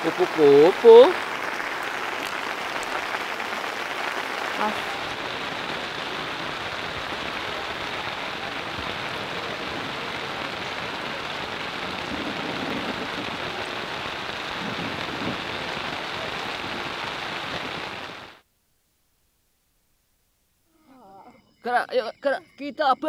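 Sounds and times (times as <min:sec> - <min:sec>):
heavy rain falling: 0:00.0 - 0:18.4.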